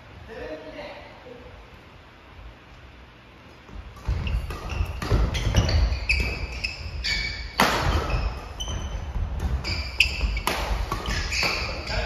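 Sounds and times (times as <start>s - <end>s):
shoes squeaking: 3.5s - 12.0s
rackets hitting shuttlecock: 3.7s - 12.0s.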